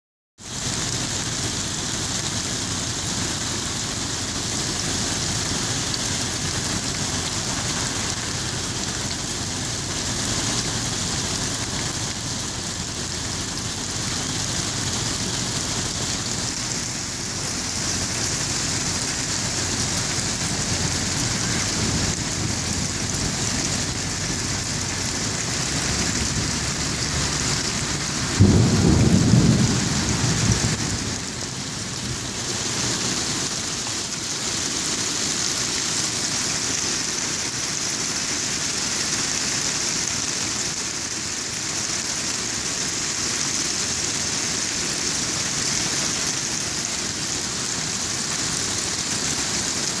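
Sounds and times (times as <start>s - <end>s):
hail and rain on a roof: 0.4s - 50.0s
thunder clap rumbling: 4.9s - 33.5s.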